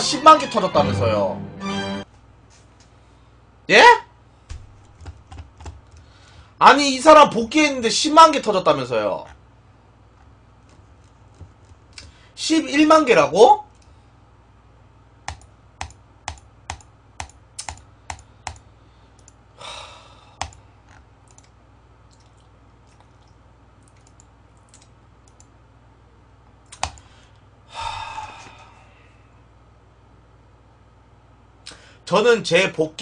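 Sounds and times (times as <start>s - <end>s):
computer keyboard clicks: 4.5s - 6.0s, 15.3s - 18.6s, 20.4s - 22.3s, 23.8s - 25.5s, 26.7s - 27.1s.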